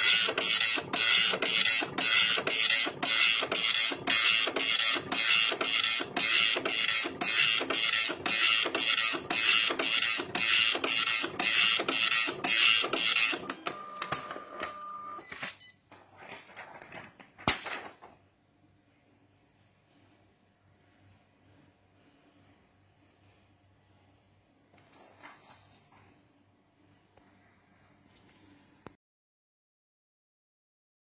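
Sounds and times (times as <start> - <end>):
printer clicks: 0.0 - 14.8
dot-matrix printer printing: 0.0 - 15.2
printer whine: 0.0 - 15.2.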